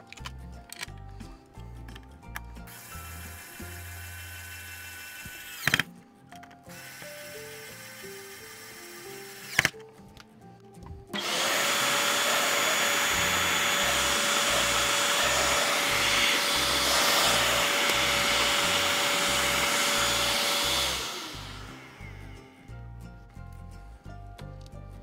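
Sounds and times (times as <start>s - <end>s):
vacuum cleaner motor whine: 11.2s - 22.7s.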